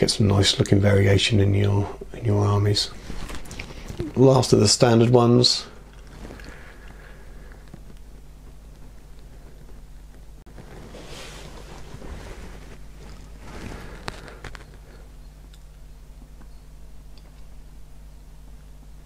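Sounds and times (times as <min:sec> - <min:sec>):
low electrical hum: 0:00.0 - 0:19.0
paint pot handling rustle: 0:10.5 - 0:15.1.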